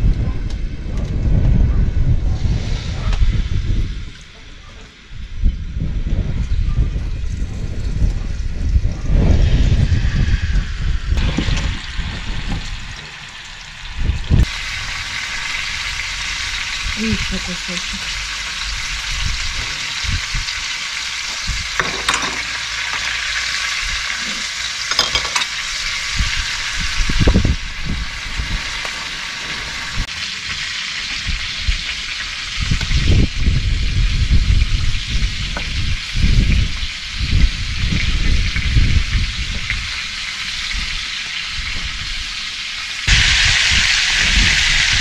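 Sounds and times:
meat sizzling in a pan: 0:07.7 - 0:45.0
kitchen utensils clicking: 0:21.8 - 0:23.1, 0:24.2 - 0:25.6.

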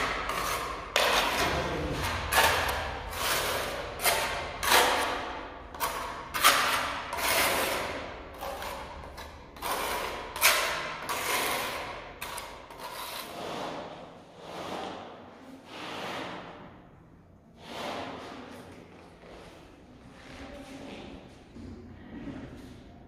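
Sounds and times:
trowel scraping mortar: 0:00.0 - 0:16.5.

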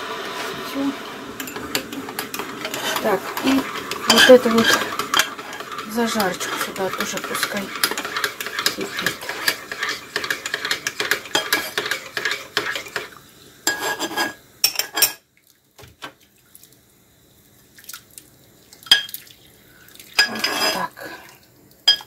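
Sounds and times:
spoon scraping a frying pan: 0:01.4 - 0:13.1, 0:13.7 - 0:15.2, 0:20.2 - 0:21.1.

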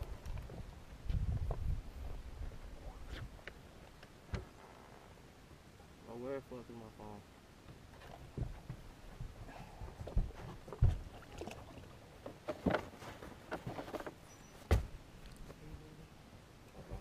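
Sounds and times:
water sloshing: 0:07.9 - 0:14.3.

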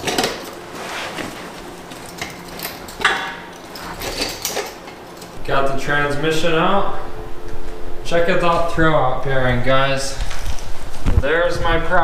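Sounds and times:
metal clanks and scrapes: 0:00.0 - 0:05.4.

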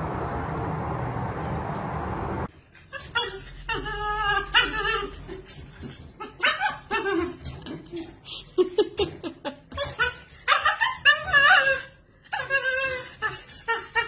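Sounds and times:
dog whining and yipping: 0:02.8 - 0:08.2, 0:09.7 - 0:14.0.

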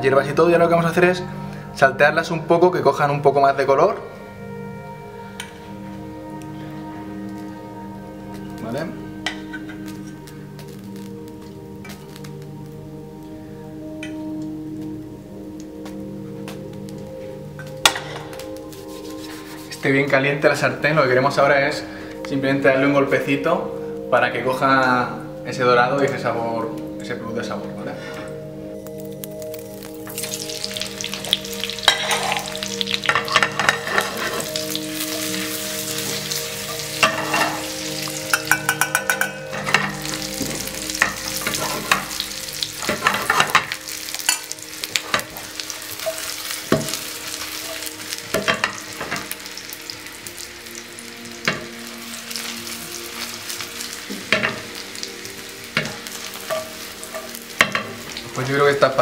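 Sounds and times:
potatoes sizzling in a frying pan: 0:09.6 - 0:13.2, 0:28.9 - 0:59.0.

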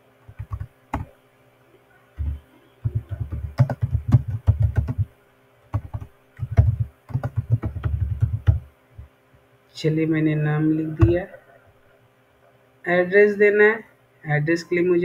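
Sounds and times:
typing on computer keyboard: 0:00.3 - 0:01.1, 0:02.2 - 0:05.1, 0:05.7 - 0:08.6.

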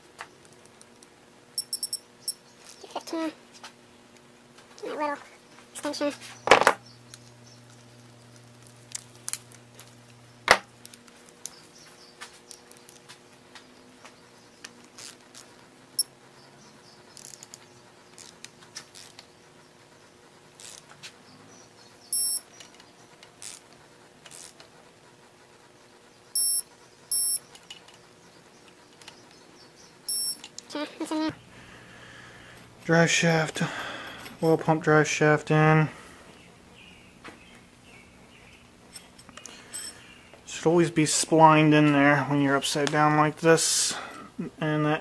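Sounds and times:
tools clicking and clinking: 0:00.5 - 0:02.8, 0:38.9 - 0:40.0
digital torque wrench beeping: 0:01.6 - 0:02.4, 0:22.1 - 0:22.5, 0:26.4 - 0:27.4, 0:30.1 - 0:30.4.

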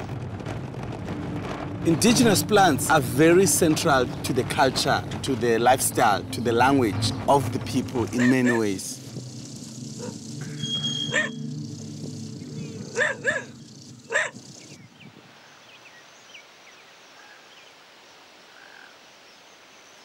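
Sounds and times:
dog barking: 0:08.2 - 0:08.6, 0:11.1 - 0:11.4, 0:13.0 - 0:13.5, 0:14.1 - 0:14.4
faint high chirps: 0:09.2 - 0:14.9.

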